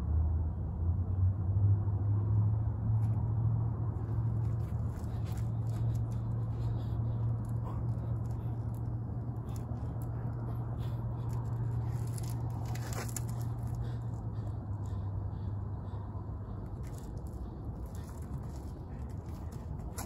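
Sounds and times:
low hum: 0.0 - 20.0
faint scrapes and ticks: 4.0 - 14.0, 16.7 - 20.0.

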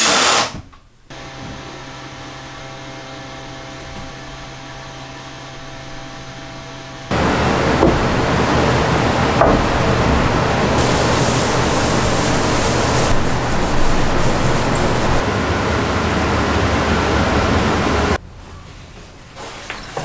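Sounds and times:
electric fan running: 1.1 - 18.2.

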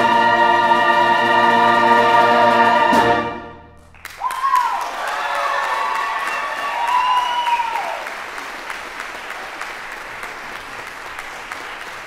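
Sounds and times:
audience applauding: 3.8 - 12.0
voices whooping: 4.2 - 8.1.

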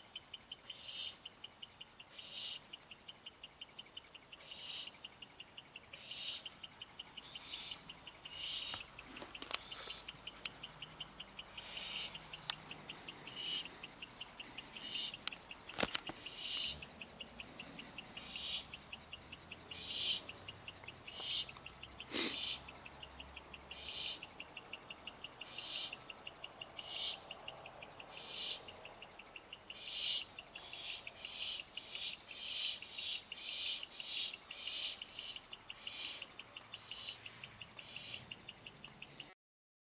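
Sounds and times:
insect chirping: 0.0 - 39.3
owl chicks hissing calls: 0.6 - 1.3, 2.1 - 2.7, 4.3 - 5.0, 5.9 - 23.0, 23.7 - 24.4, 25.0 - 27.4, 28.0 - 39.3
sharp click: 15.2 - 16.7.

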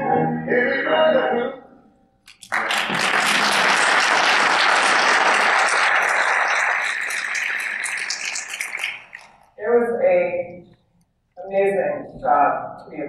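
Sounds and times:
audience applauding: 2.3 - 9.3.

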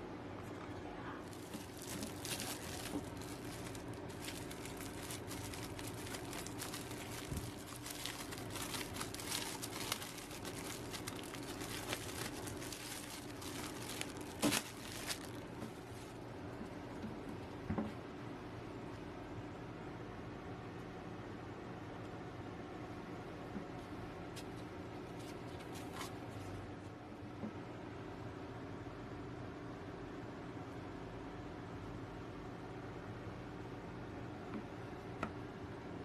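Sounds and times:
plastic bag crinkling: 1.2 - 16.2.

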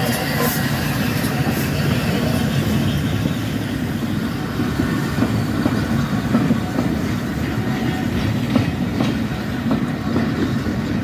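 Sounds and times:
train wheels rumbling on rail: 0.0 - 11.0
wheels clicking over rail joints: 4.5 - 11.0.

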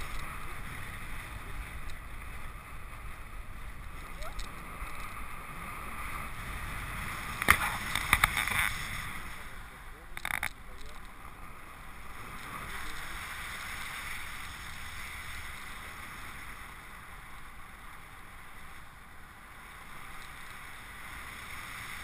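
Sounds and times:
wind noise over a camera: 0.0 - 9.3.

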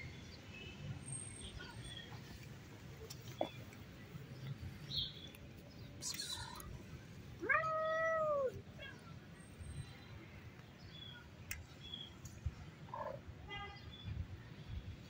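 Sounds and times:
cat meowing: 7.4 - 8.6.

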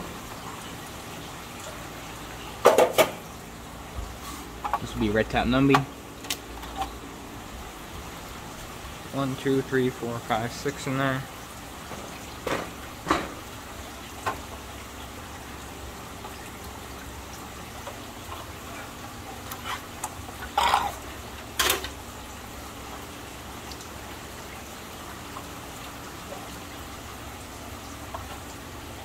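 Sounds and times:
aquarium water trickling: 0.0 - 29.0
short knocks or splashes: 11.9 - 13.5.

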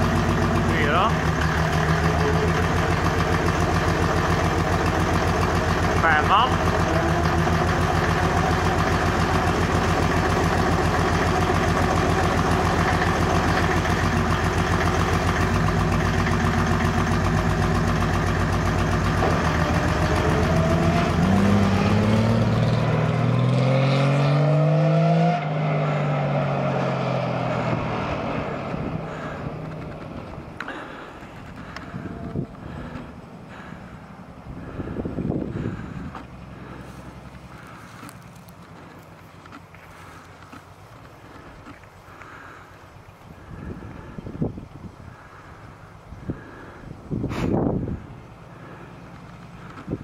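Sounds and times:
diesel engine idling: 0.0 - 23.7, 25.5 - 50.0.

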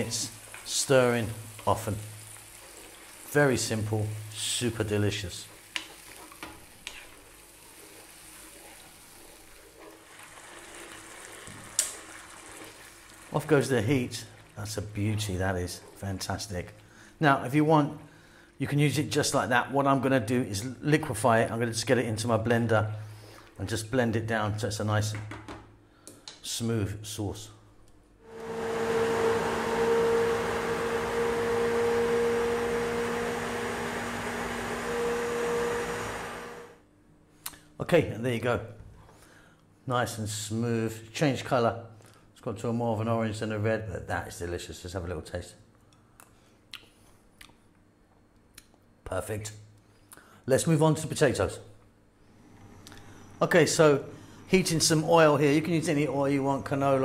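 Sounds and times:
sauce bubbling in a pan: 0.2 - 16.0
wooden spoon scraping a pan: 5.4 - 10.3
immersion blender motor humming: 28.3 - 36.8.

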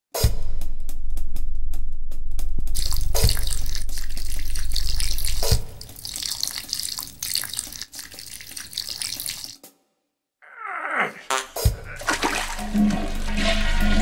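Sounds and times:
person urinating into toilet water: 2.8 - 9.6, 11.4 - 14.0
low hum: 11.8 - 14.0.

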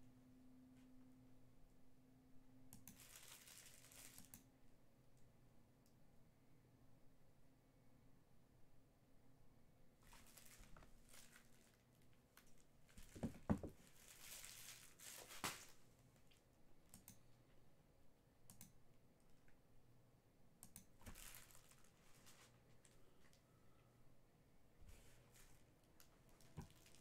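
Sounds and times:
wrappers crinkling and tearing: 2.9 - 4.3, 10.0 - 13.2, 13.8 - 16.4, 21.0 - 23.4, 24.9 - 27.0.

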